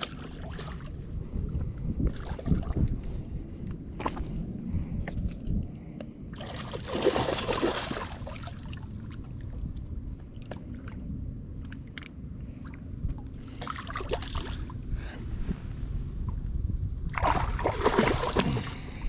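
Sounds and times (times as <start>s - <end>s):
wind noise on microphone: 0.0s - 19.0s
fish splashing in water: 6.4s - 8.8s, 17.2s - 18.8s.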